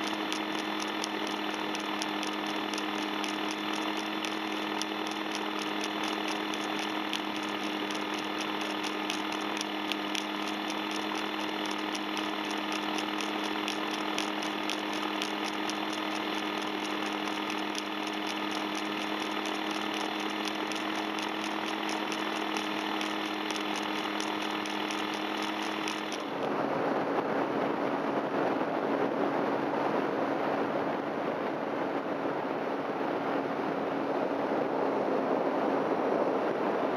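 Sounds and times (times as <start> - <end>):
paramotor engine humming: 0.0 - 26.5.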